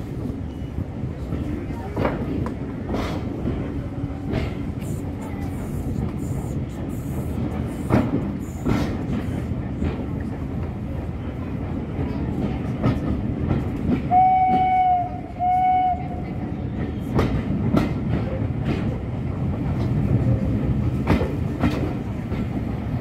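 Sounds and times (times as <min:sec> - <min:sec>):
train coaches rumbling: 0:00.0 - 0:23.0
steam whistle: 0:14.1 - 0:16.2.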